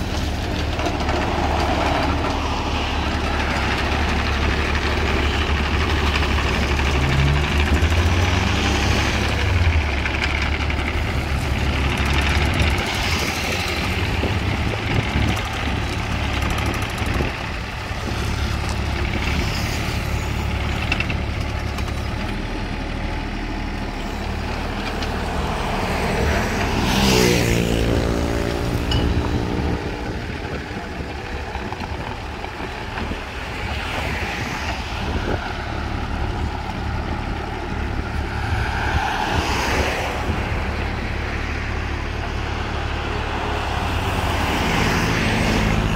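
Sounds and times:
small diesel engine running: 0.0 - 38.5
road vehicle passing: 0.0 - 45.9.

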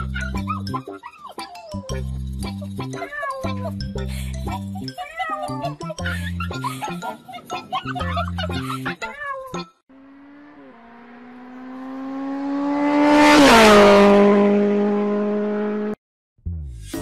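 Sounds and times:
car driving past at speed: 9.9 - 16.0.

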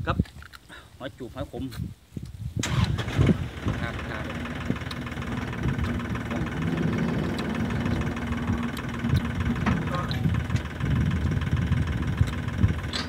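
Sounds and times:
engine idling: 2.6 - 13.0.

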